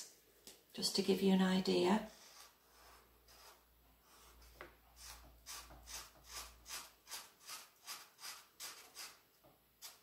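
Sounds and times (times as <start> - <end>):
pen scratching on cardboard: 2.1 - 9.2.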